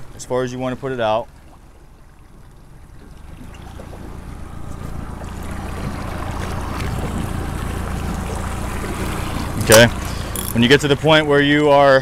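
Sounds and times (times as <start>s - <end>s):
water rushing along boat hull: 0.0s - 12.0s
wind buffeting microphone: 2.4s - 11.4s.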